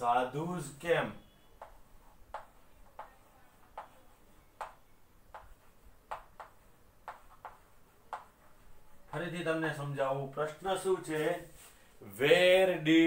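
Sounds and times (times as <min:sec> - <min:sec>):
chalk ticking on a blackboard: 0:01.6 - 0:09.4.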